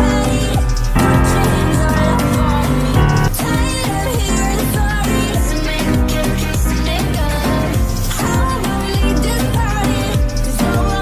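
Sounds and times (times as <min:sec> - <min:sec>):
instrumental music with deep bass: 0:00.0 - 0:05.6.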